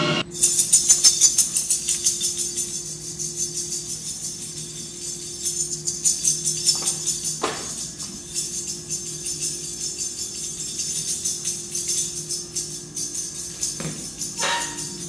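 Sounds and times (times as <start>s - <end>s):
jingling hand percussion: 0.3s - 15.0s.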